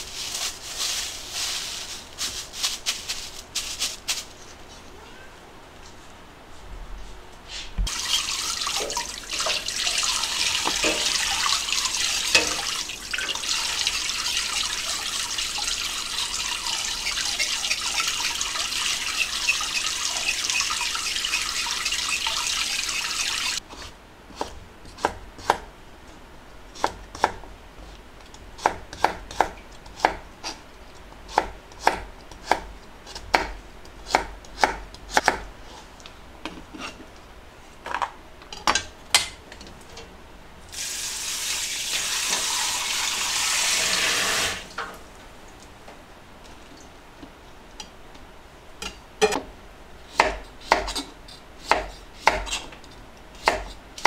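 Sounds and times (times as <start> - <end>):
tap running into steel basin: 7.9 - 23.6
knife chopping on plastic board: 31.4 - 35.4.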